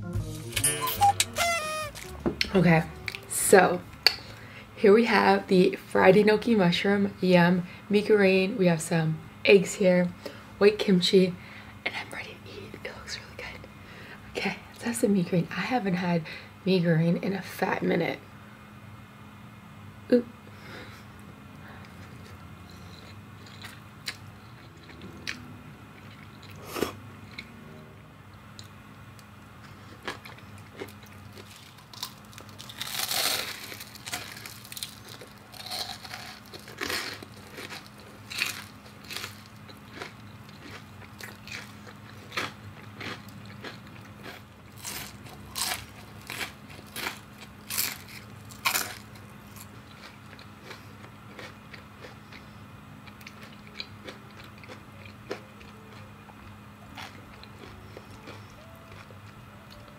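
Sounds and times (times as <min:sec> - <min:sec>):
crunching and chewing: 0:21.7 - 0:27.6, 0:28.5 - 0:59.9.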